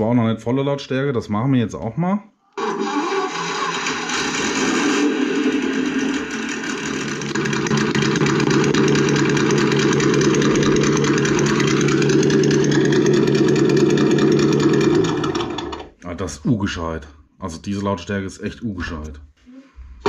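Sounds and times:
simulated engine sound through speakers: 0:04.1 - 0:15.5.

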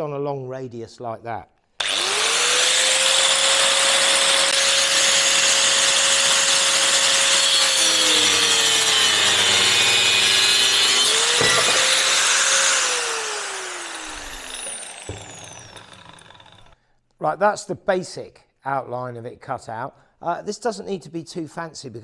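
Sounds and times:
angle grinder cutting metal: 0:01.8 - 0:16.8
grinder spinning down: 0:01.8 - 0:16.8.

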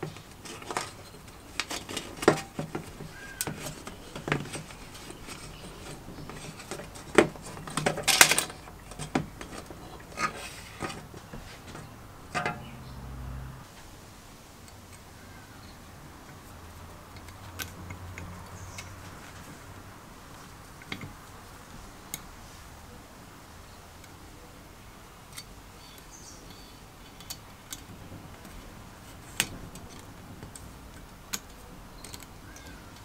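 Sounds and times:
sheet metal clicking and clinking: 0:00.0 - 0:11.1.

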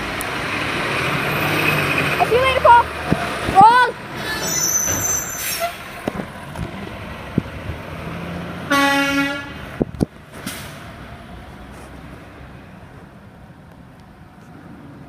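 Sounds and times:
truck horn toot: 0:08.7 - 0:09.6.

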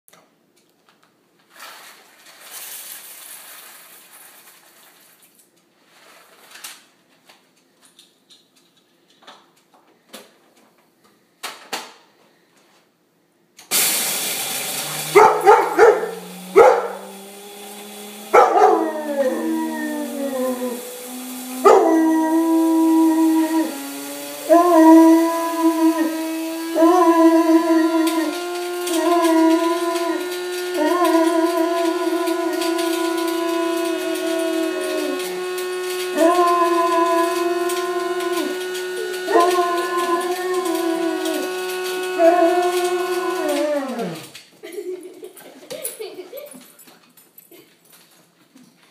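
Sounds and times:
coffee beans pouring and rattling: 0:01.5 - 0:05.4, 0:13.8 - 0:44.4
coffee grinder whirring: 0:13.7 - 0:44.9
dog howling: 0:14.6 - 0:44.4.

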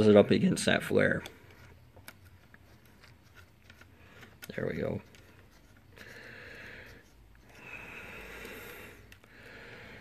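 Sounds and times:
person breathing softly: 0:05.2 - 0:10.0.

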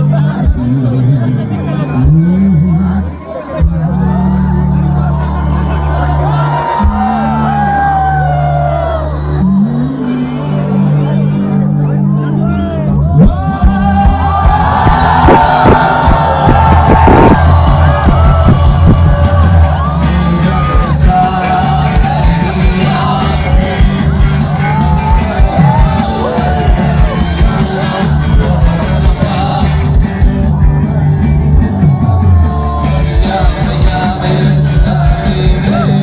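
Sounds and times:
crowd yelling and whooping: 0:00.0 - 0:11.2, 0:12.2 - 0:36.0
live pop-rock band: 0:00.0 - 0:36.0
lead vocal singing: 0:13.2 - 0:36.0.

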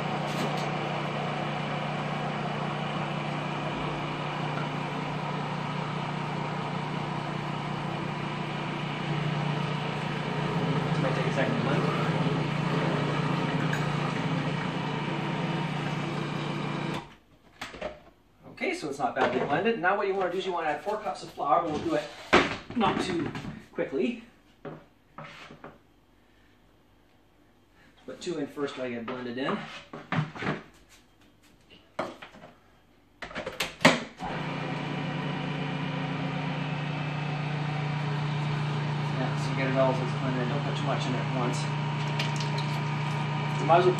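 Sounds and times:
food processor motor humming: 0:00.0 - 0:17.1, 0:34.2 - 0:43.9.

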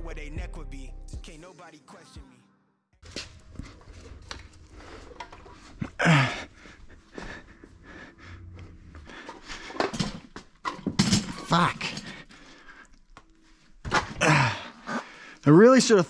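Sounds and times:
low hum: 0:03.0 - 0:09.8.

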